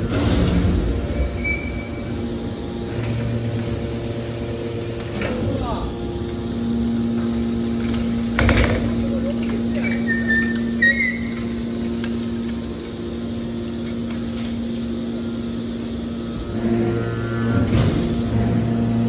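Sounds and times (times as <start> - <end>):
hydraulic unit humming: 0.0 - 19.0
high squeal: 1.3 - 2.2, 9.8 - 11.6.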